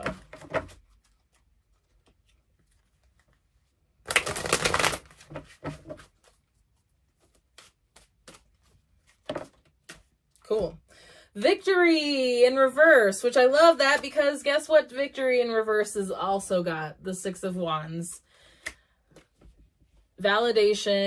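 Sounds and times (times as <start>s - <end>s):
cards riffle-shuffled: 0.3s - 10.2s
cards tapping and flicking: 4.0s - 6.4s, 7.2s - 10.2s.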